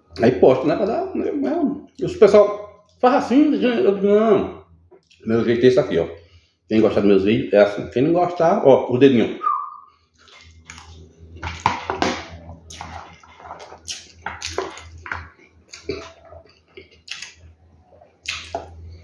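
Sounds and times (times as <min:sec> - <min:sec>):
low steady hum: 0:00.0 - 0:19.0
chewing food: 0:10.0 - 0:19.0.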